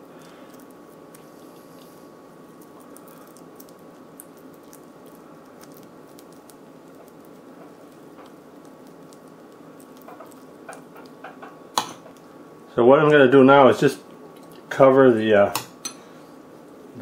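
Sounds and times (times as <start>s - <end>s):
brush dabbing wet sauce: 0.0s - 12.4s.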